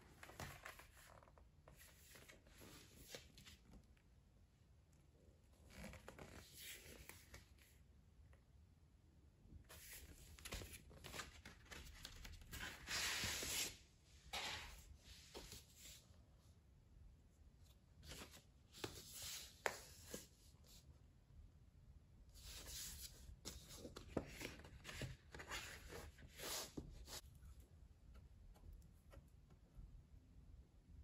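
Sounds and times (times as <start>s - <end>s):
cardboard and paper rustling: 22.4s - 27.2s.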